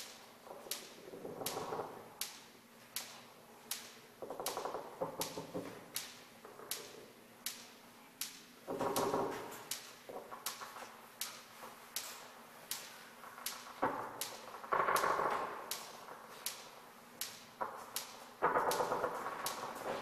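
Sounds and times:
sharp clicks: 12.0 - 19.9.

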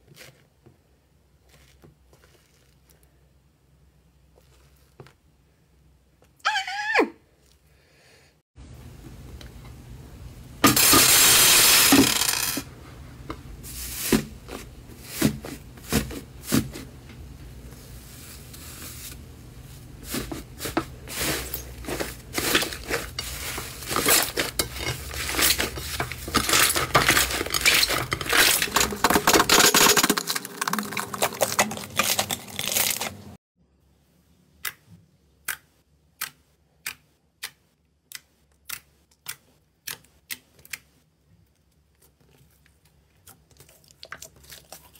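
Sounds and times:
slime crackling and squelching: 1.4 - 3.1, 19.9 - 33.4.

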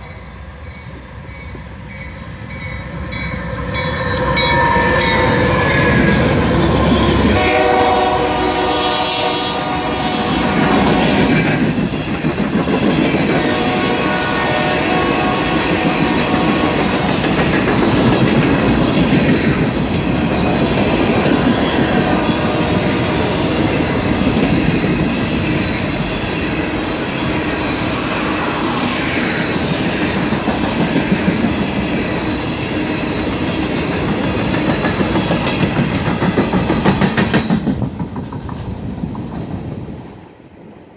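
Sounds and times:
wheels clacking over rail joints: 15.7 - 25.1, 33.3 - 39.6.

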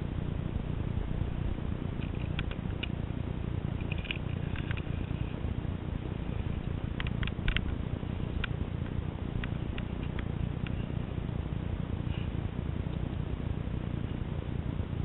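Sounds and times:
sharp clicks: 2.0 - 3.0, 6.6 - 10.9.

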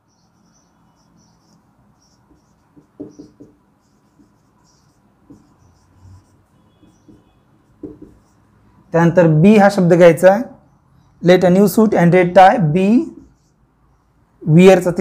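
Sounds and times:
marker scratching on whiteboard: 0.0 - 8.9, 13.0 - 15.0
pen knocking against board: 2.3 - 3.6, 7.0 - 8.2.

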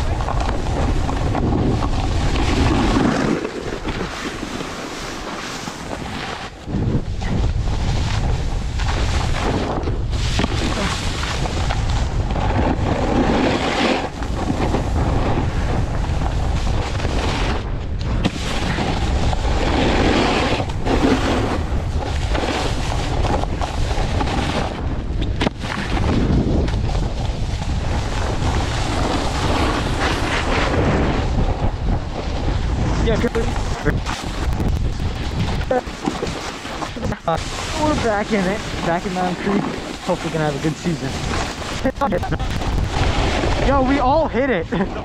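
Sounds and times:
snowboard scraping on snow: 0.0 - 45.0
wind buffeting microphone: 0.0 - 45.0.

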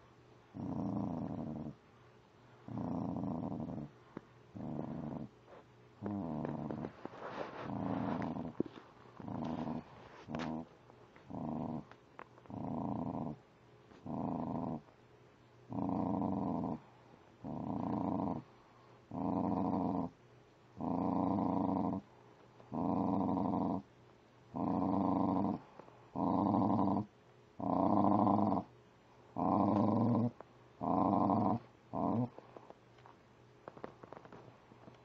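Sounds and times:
dog growling low: 0.5 - 1.8, 2.6 - 13.4, 14.0 - 14.9, 15.7 - 18.5, 19.1 - 20.2, 20.8 - 23.9, 24.5 - 28.7, 29.3 - 32.6.

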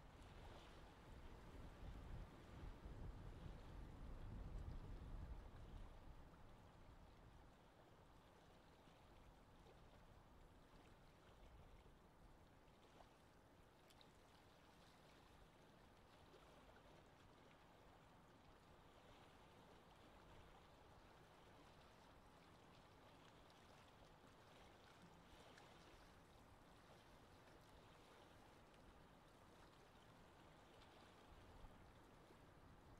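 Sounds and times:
gentle wind: 0.0 - 32.9
water: 0.0 - 32.9.

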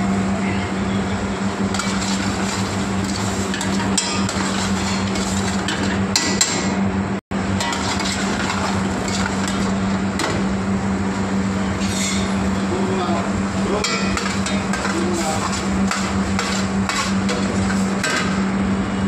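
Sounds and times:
constant low hum: 0.0 - 19.0
ladle scraping a steel pan: 1.7 - 5.9, 7.6 - 9.8, 13.9 - 18.2.

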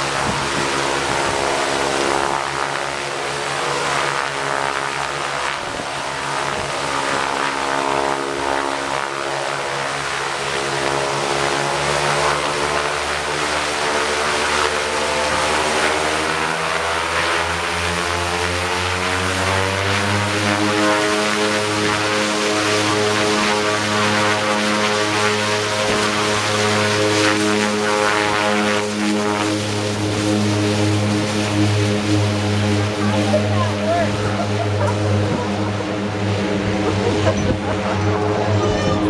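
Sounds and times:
turboprop propeller drone: 0.0 - 39.0.

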